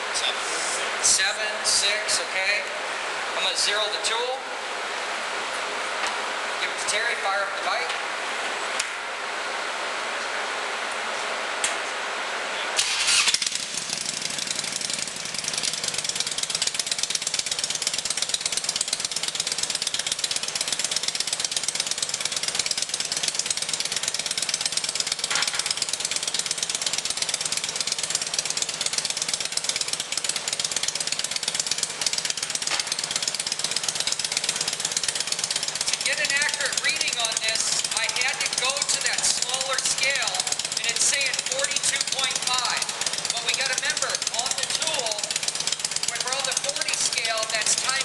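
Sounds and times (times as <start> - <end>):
motorcycle engine running: 12.8 - 48.0.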